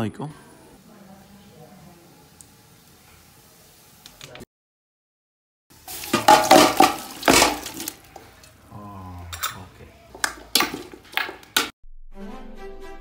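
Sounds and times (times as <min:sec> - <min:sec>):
metal pots clanking: 0:05.8 - 0:08.6, 0:09.3 - 0:11.7
scraping in a metal pot: 0:05.9 - 0:08.5.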